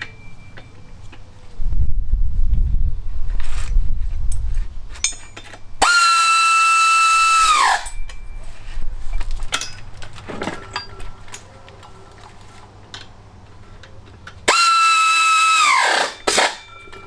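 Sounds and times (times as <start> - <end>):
pneumatic tool whine: 5.1 - 8.0, 14.5 - 16.8.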